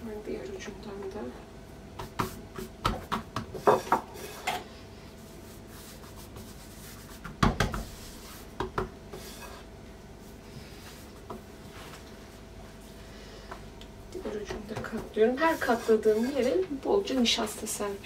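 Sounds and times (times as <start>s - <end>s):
hands patting dough: 2.0s - 4.1s, 5.4s - 9.3s
hands rubbing dough: 2.0s - 13.0s, 14.5s - 16.7s.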